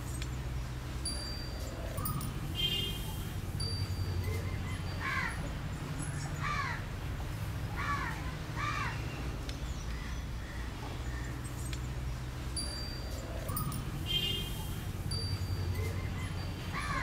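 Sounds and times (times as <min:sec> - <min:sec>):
crow cawing: 0:06.4 - 0:06.9, 0:07.8 - 0:09.0.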